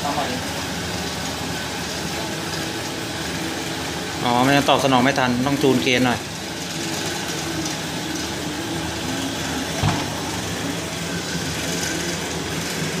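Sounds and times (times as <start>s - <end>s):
electric motor and flywheel humming: 0.0s - 13.0s
single thump: 9.8s - 10.1s.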